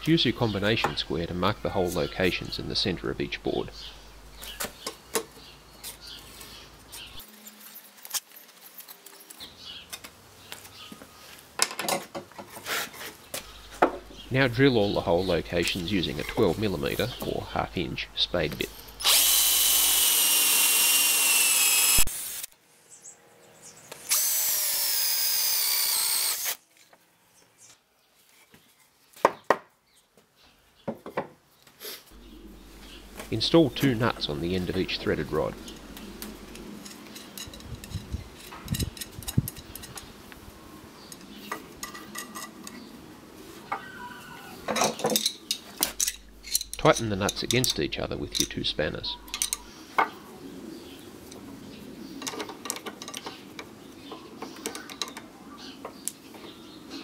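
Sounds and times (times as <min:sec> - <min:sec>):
power drill whine: 0:18.7 - 0:22.5, 0:24.0 - 0:26.6
metal nuts clicking on rod: 0:49.3 - 0:49.6.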